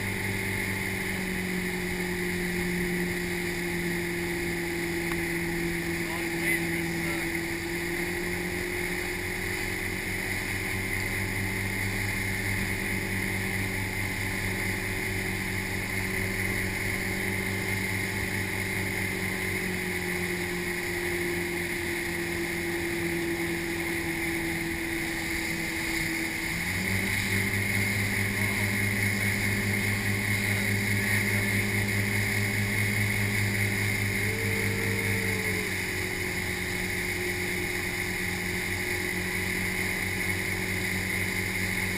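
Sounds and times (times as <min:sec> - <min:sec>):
motorboat engine running: 0:00.0 - 0:41.9
rush of wake water: 0:00.0 - 0:41.9
wind: 0:00.0 - 0:41.9.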